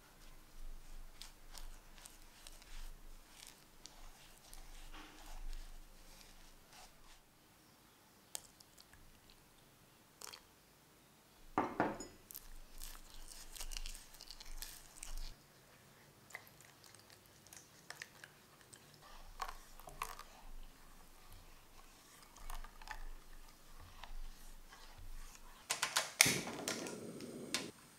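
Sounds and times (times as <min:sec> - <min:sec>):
spatula squelching thick paste: 0:00.0 - 0:07.3, 0:12.3 - 0:15.4, 0:16.2 - 0:25.7.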